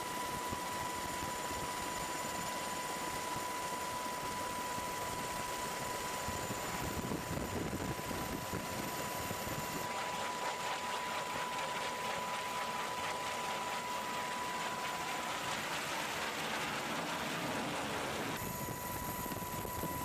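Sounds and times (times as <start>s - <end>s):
jet engine whine: 0.0s - 20.0s.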